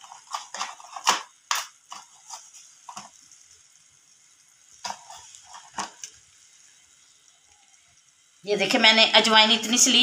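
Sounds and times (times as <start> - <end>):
kitchen utensils clinking: 0.0 - 3.1
food frying in a pan: 0.0 - 10.0.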